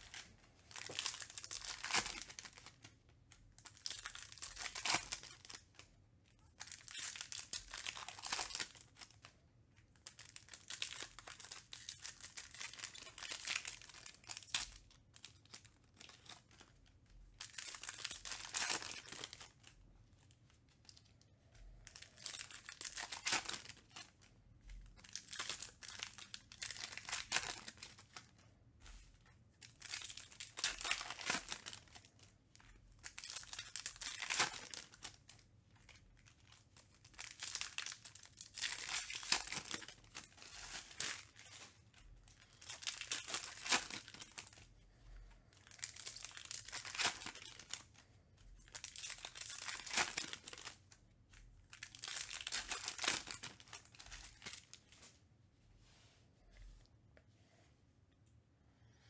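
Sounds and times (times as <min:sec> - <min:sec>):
foil wrappers tearing and crinkling: 0:00.0 - 0:02.8, 0:03.7 - 0:05.6, 0:06.6 - 0:09.2, 0:17.4 - 0:19.6, 0:21.9 - 0:24.2, 0:25.0 - 0:28.2, 0:29.8 - 0:32.0, 0:33.0 - 0:44.6, 0:45.6 - 0:47.8, 0:48.7 - 0:50.8, 0:51.7 - 0:54.7.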